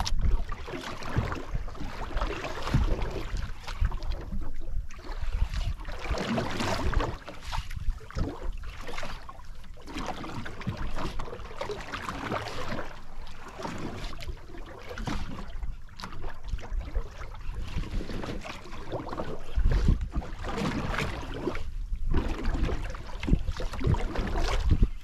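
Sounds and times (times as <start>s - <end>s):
wind buffeting microphone: 0.0s - 9.0s, 15.0s - 25.0s
waves sloshing against a hull: 0.0s - 25.0s.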